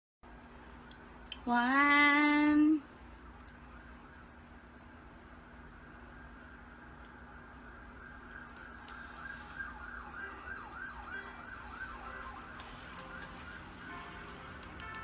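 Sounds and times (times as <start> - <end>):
steady low hum: 0.2 - 15.0
faint siren warbling: 3.7 - 15.0.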